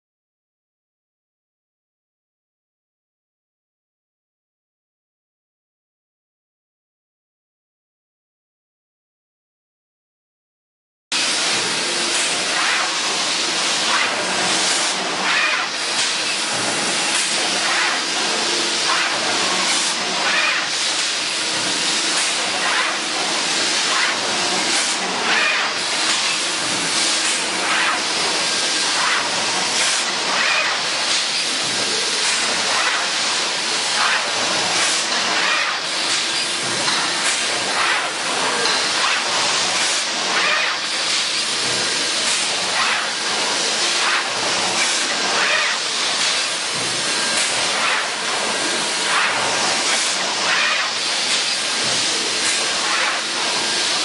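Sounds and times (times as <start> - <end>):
hiss of air and machinery: 11.2 - 54.0
pneumatic clacks and puffs: 11.2 - 54.0.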